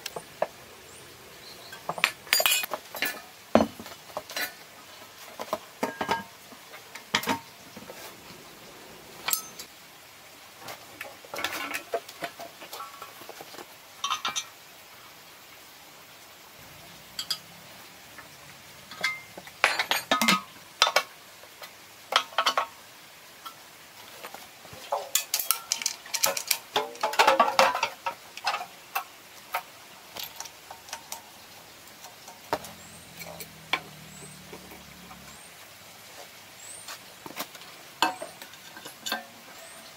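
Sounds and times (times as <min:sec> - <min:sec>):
metal tools knocking on engine parts: 0:01.7 - 0:04.6, 0:09.3 - 0:09.7, 0:17.2 - 0:17.5, 0:18.9 - 0:21.1.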